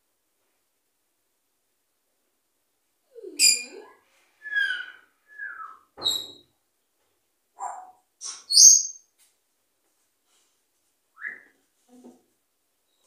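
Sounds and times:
parrot whistling and squawking: 4.4 - 6.4.

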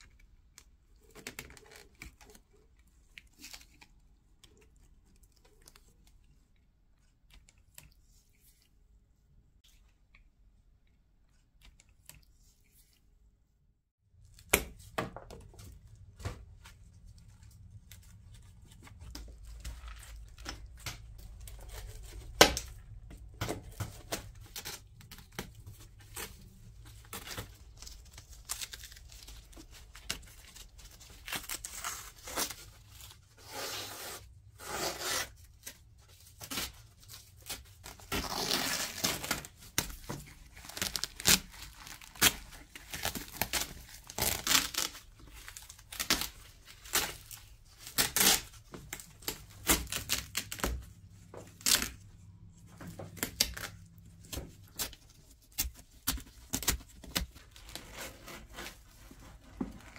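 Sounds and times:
fabric tearing: 33.4 - 35.4, 37.9 - 39.5, 40.7 - 45.0.

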